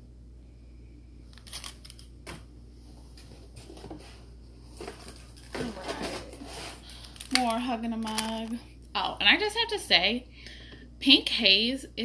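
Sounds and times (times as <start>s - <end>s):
low steady hum: 0.0s - 12.0s
plastic packs crinkling: 4.9s - 8.6s.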